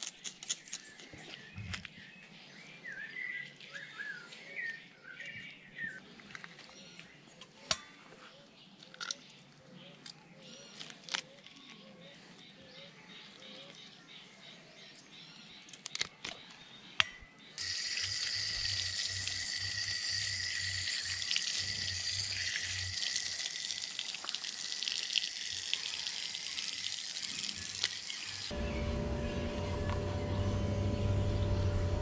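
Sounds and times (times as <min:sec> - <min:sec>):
tap water pouring and splashing: 0:17.6 - 0:28.5.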